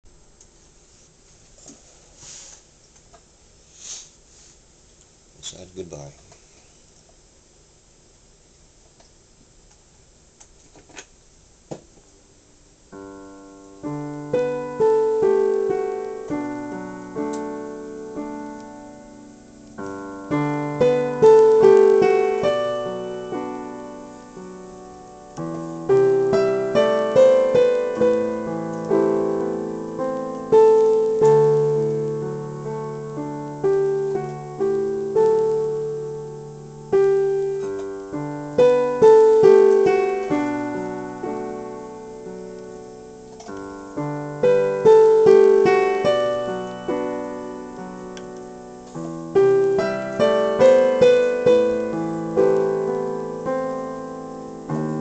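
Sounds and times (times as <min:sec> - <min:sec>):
electronic keyboard piano chords: 0:12.9 - 0:55.0.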